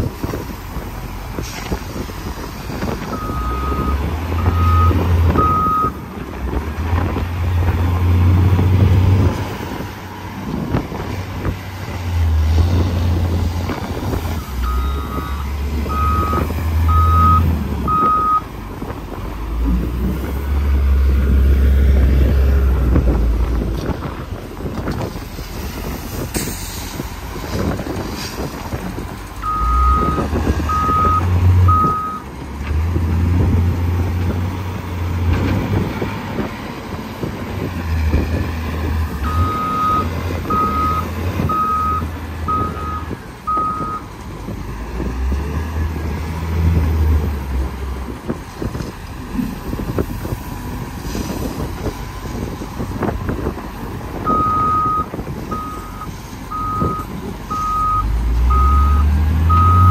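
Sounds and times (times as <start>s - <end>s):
diesel engine rumbling: 0.0s - 59.9s
reversing alarm beeping: 3.2s - 6.0s, 14.4s - 18.4s, 39.2s - 44.0s, 54.3s - 59.9s.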